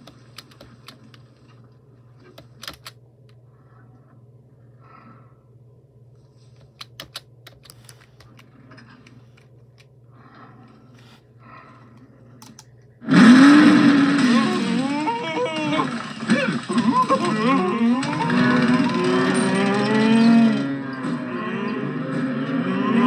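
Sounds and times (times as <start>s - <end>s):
faint low hum: 0.0s - 23.0s
cartoon soundtrack: 13.1s - 23.0s
moo-like calls: 13.1s - 23.0s.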